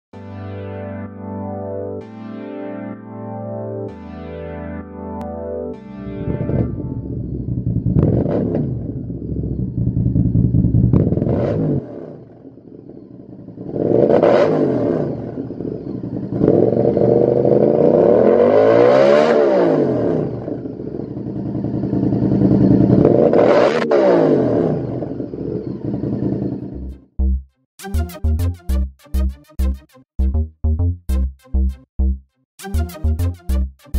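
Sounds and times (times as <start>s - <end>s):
motorcycle engine revving: 6.2s - 27.1s.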